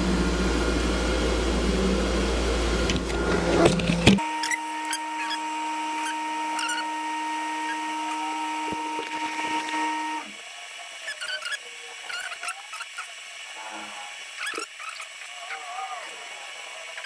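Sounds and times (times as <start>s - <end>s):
two-pitch machine hum: 0.0s - 10.5s
faint high chirps and squeaks: 11.0s - 13.1s, 14.4s - 15.6s.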